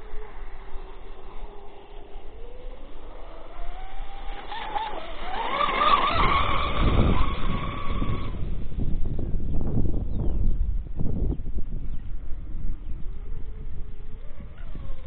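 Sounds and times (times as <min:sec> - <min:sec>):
electric boat motor whining: 0:00.0 - 0:08.8, 0:13.1 - 0:15.0
low rumbling noise: 0:00.0 - 0:15.0.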